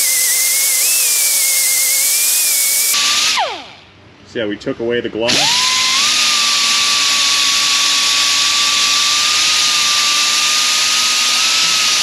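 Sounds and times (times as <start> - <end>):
angle grinder sanding whine: 0.0 - 3.8.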